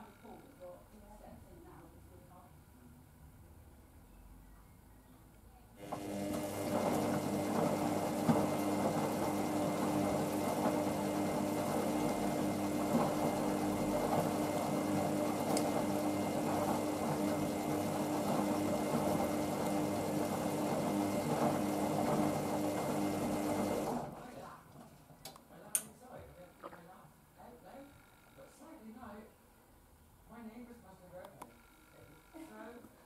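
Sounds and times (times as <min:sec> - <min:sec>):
washing machine motor hum: 0:05.8 - 0:24.6.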